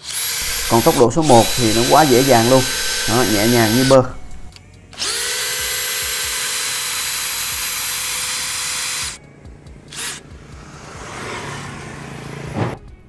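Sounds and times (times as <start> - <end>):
cordless drill driving screw: 0.0 - 9.2, 9.9 - 10.2.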